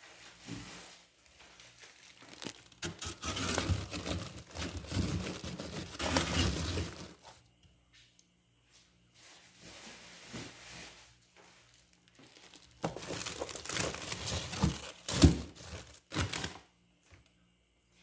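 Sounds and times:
plastic bags crinkling: 0:01.2 - 0:07.4, 0:11.6 - 0:16.7.

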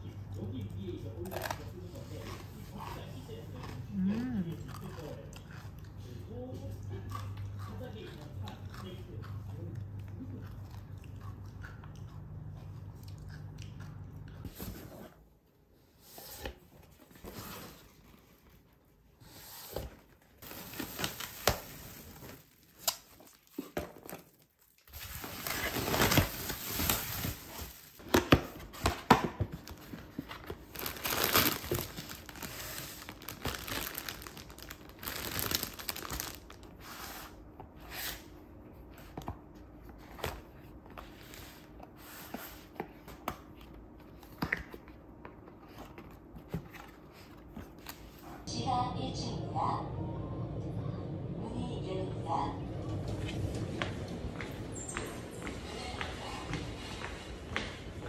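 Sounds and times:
packaging crinkling and tearing: 0:20.4 - 0:28.4, 0:29.5 - 0:36.9.

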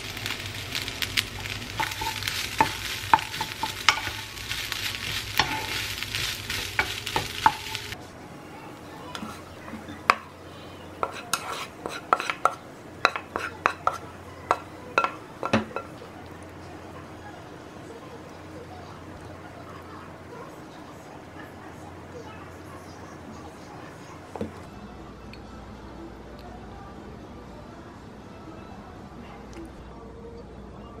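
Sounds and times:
rice sizzling in a frying pan: 0:00.0 - 0:08.0, 0:11.0 - 0:20.0
spatula scraping a pan: 0:01.7 - 0:08.0, 0:10.9 - 0:15.8.

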